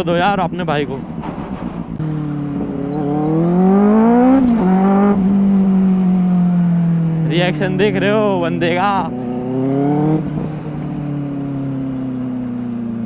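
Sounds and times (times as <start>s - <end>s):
motorcycle engine accelerating: 1.0s - 13.0s.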